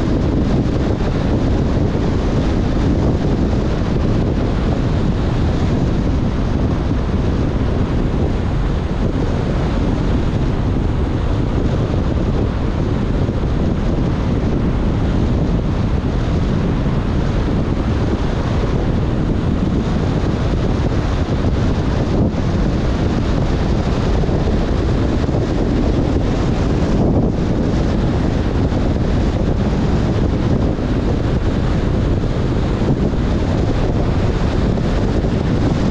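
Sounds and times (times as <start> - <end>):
car driving on wet road: 0.0 - 35.9
wind buffeting microphone: 0.0 - 35.9
heavy rain: 14.1 - 35.9.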